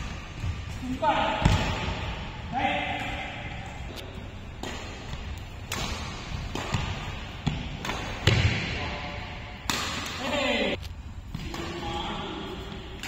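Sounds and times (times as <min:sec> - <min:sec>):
racket striking shuttlecock: 0:02.9 - 0:08.7, 0:09.6 - 0:10.3.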